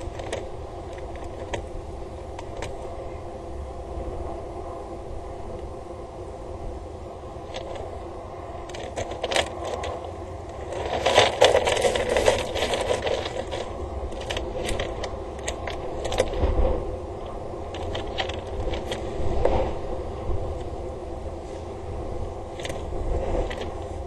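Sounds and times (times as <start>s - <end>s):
clicks taps and scrapes: 8.6s - 16.6s, 22.6s - 23.8s.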